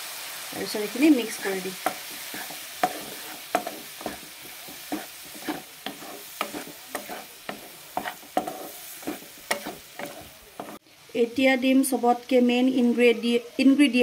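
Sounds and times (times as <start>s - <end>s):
food sizzling: 0.0s - 14.0s
wooden spatula scraping a wok: 0.5s - 10.8s.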